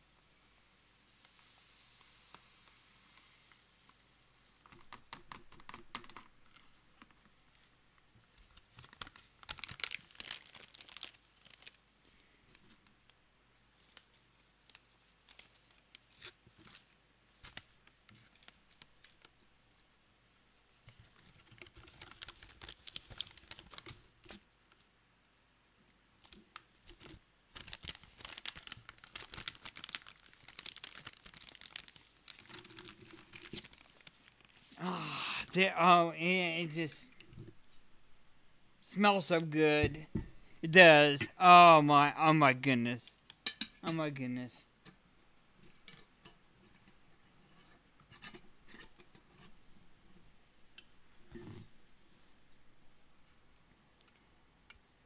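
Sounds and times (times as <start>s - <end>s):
paper coffee bag crinkling: 8.4s - 11.8s, 13.7s - 16.8s, 21.0s - 24.1s, 26.1s - 34.8s.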